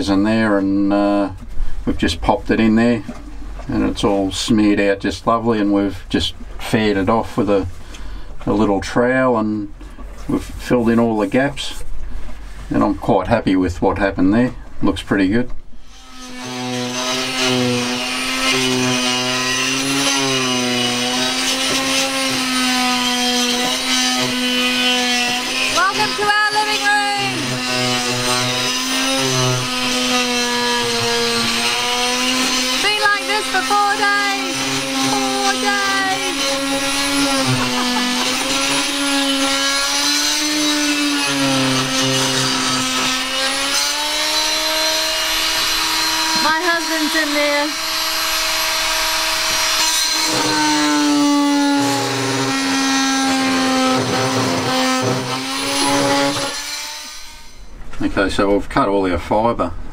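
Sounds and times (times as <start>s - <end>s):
power tool motor whining: 15.8s - 57.7s.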